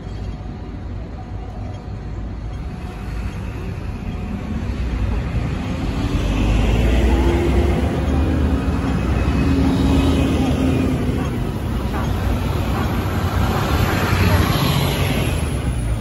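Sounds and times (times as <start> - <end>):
traffic rumble: 0.0 - 16.0
vehicle engine hum: 0.0 - 16.0.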